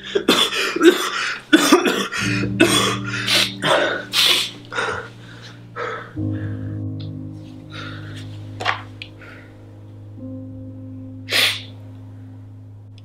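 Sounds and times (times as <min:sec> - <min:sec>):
low sustained music notes: 0:00.0 - 0:13.0
boy coughing harshly: 0:00.1 - 0:04.5.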